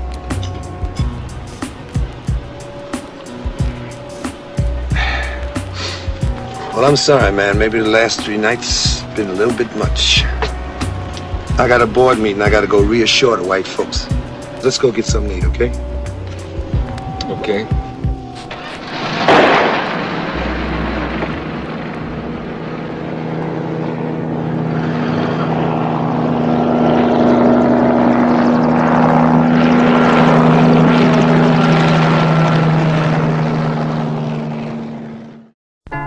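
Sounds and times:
noisy wash: 0:00.0 - 0:35.2
loud engine drone: 0:00.0 - 0:35.6.

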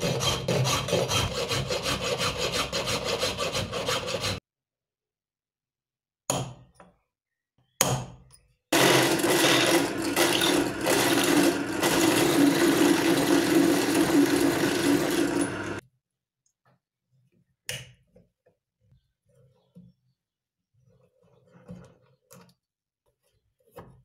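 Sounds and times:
drill press drilling into wood: 0:08.8 - 0:15.8.

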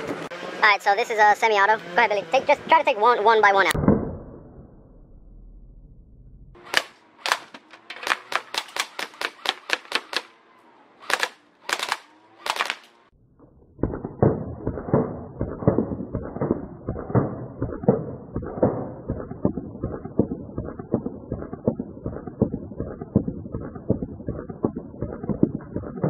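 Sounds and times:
airsoft gun shots: 0:06.6 - 0:10.4, 0:11.0 - 0:13.0, 0:13.9 - 0:21.7.

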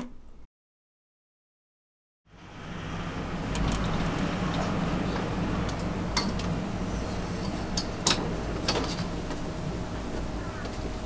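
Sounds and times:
constant low hum: 0:02.3 - 0:11.0
low outdoor rumble: 0:02.3 - 0:11.0.

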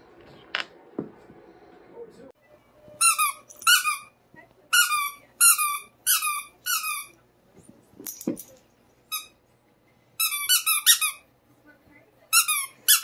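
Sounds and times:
squeaky toy squeaks: 0:03.0 - 0:07.2, 0:09.1 - 0:09.4, 0:10.2 - 0:11.2, 0:12.3 - 0:13.0.

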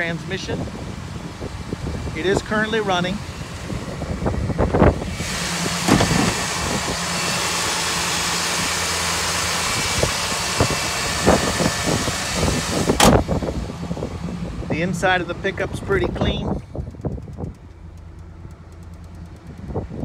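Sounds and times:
truck engine idling: 0:00.0 - 0:20.0
knocks and clunks on truck: 0:05.8 - 0:06.3, 0:12.9 - 0:13.5.

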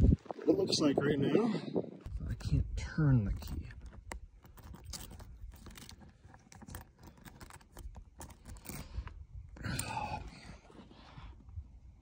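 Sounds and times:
key clicking and scraping in lock: 0:03.3 - 0:09.2.

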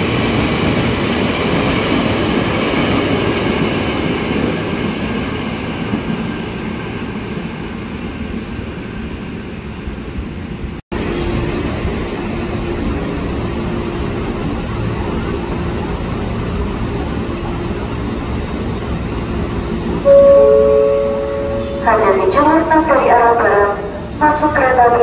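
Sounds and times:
railway station rumble: 0:00.0 - 0:25.0
locomotive engine droning: 0:11.0 - 0:25.0.

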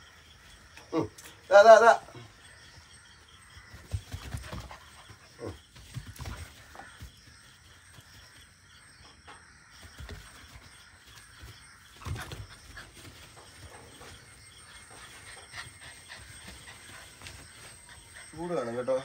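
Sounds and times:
puppy panting: 0:12.3 - 0:18.8.

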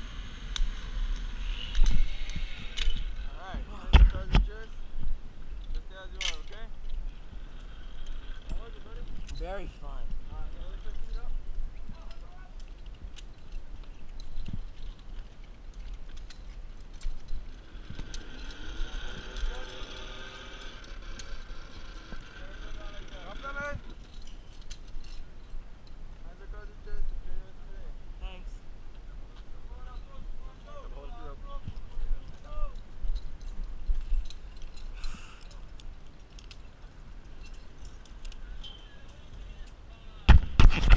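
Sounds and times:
wind rumble on microphone: 0:00.0 - 0:24.2, 0:40.2 - 0:40.9
clicks and knocks of climbing gear: 0:00.5 - 0:18.6, 0:19.4 - 0:26.0, 0:31.5 - 0:40.9.

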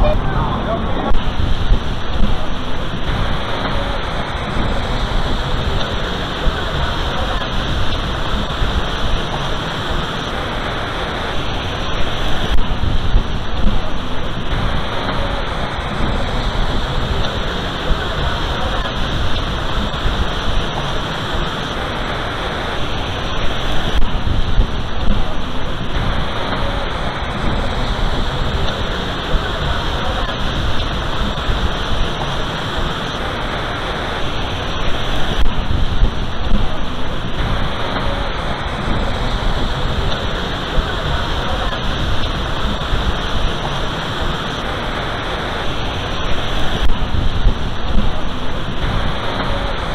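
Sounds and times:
low rumble: 0:00.0 - 0:10.8
waterfall rushing: 0:00.0 - 0:49.9.

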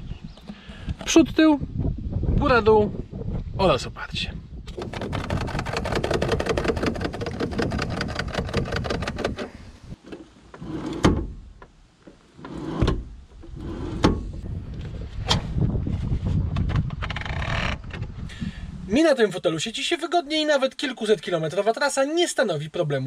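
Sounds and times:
seat ratchet clicks: 0:04.7 - 0:10.2
seat latches clunking: 0:04.7 - 0:14.4.

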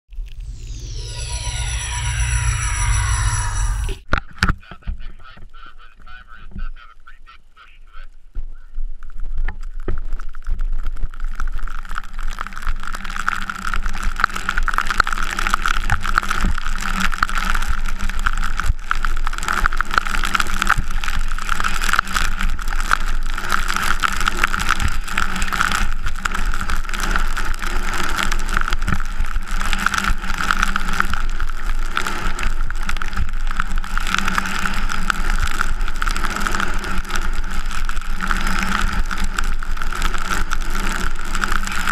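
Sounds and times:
whistle-like tone: 0:00.2 - 0:04.0.

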